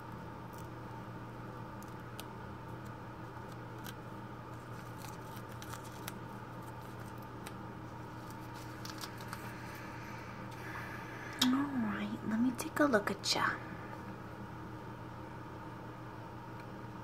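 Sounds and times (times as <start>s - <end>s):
steady low hum: 0.0s - 17.0s
light crinkling: 1.8s - 9.8s.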